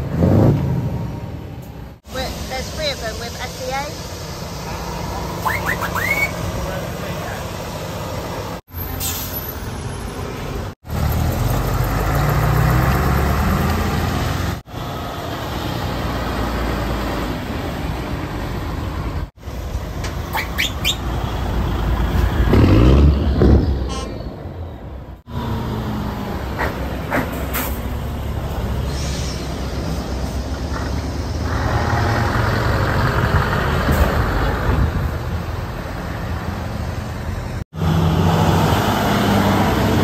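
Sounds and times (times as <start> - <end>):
diesel trucks driving past: 0.0 - 40.0.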